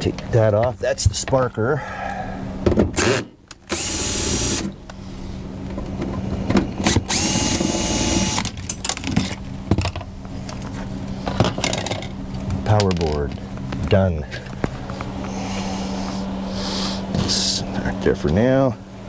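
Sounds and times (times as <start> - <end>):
cordless drill motor whine: 3.0 - 4.8, 6.8 - 8.6
clicks of tools and metal parts: 8.4 - 10.7, 11.3 - 12.1, 12.7 - 13.4.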